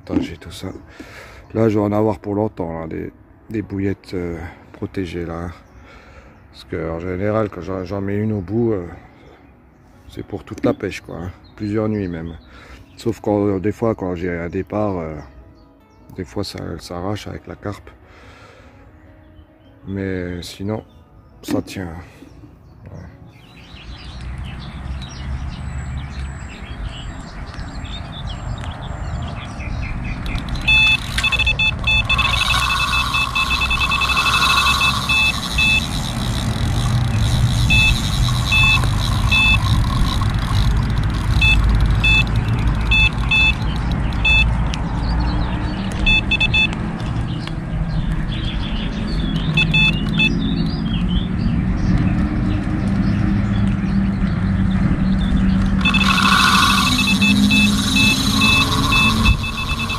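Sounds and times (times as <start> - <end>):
bite alarm beeping: 30.3 - 44.6, 46.1 - 46.8, 49.5 - 50.4, 55.8 - 59.9.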